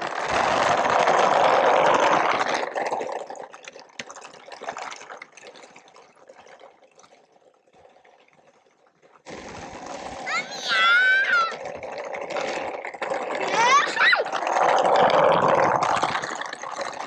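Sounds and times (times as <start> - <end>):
wheels rattling over gravel: 0.0 - 3.0.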